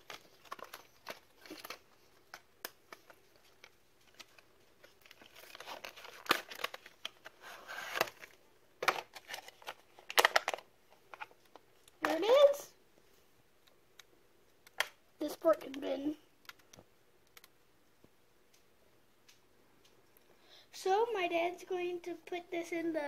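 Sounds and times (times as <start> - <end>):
plastic packaging crinkling: 0.0 - 12.3.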